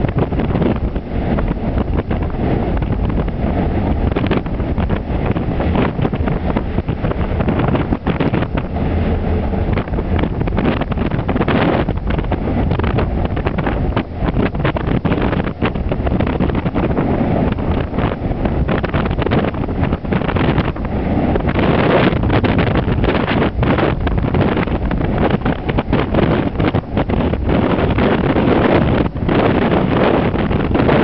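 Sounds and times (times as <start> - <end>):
heavy seas breaking on hull: 0.0 - 31.0
wind buffeting microphone: 0.0 - 31.0.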